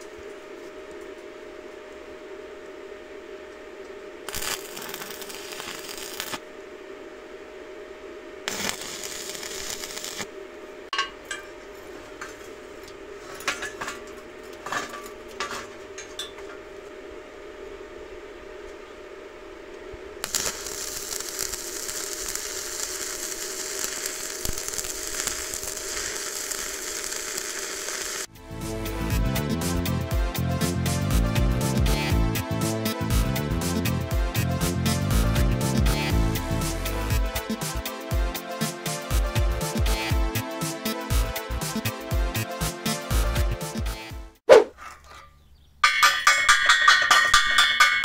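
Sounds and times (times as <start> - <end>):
steady hum: 0.0 - 37.5
arc welding crackle: 4.2 - 6.5, 8.4 - 10.4, 20.2 - 30.0
metallic clanks and knocks: 45.1 - 48.0.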